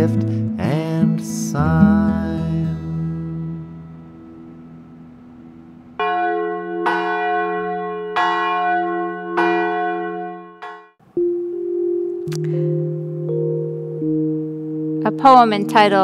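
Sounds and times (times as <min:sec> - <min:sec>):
acoustic guitar chord: 0:00.0 - 0:06.0, 0:11.1 - 0:16.0
bell ringing: 0:06.0 - 0:11.4.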